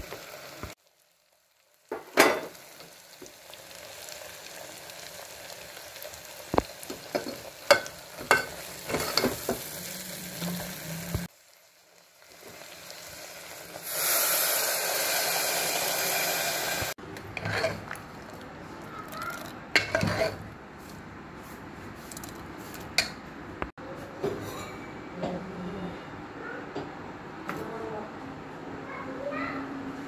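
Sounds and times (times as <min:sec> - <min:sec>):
pressure cooker hissing: 0:12.3 - 0:17.0
spoon scraping metal pot: 0:17.2 - 0:18.0, 0:19.8 - 0:20.4.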